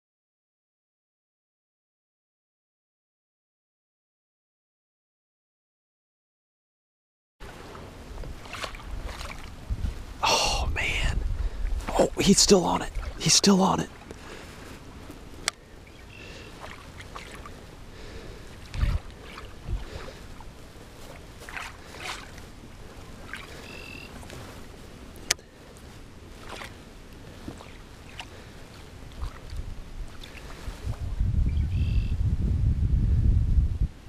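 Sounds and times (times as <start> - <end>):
small water splashes: 7.4 - 10.2, 11.5 - 31.0
water lapping at boat hull: 7.4 - 10.2, 11.3 - 31.1.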